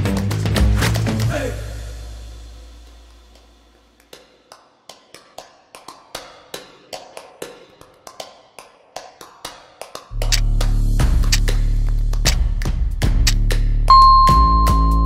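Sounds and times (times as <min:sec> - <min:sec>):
background music: 0:00.0 - 0:03.4, 0:10.1 - 0:15.0
countdown timer ticks: 0:13.9 - 0:15.0.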